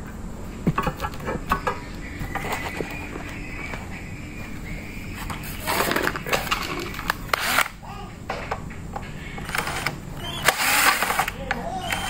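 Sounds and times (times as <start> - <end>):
cordless drill running: 9.5 - 12.0.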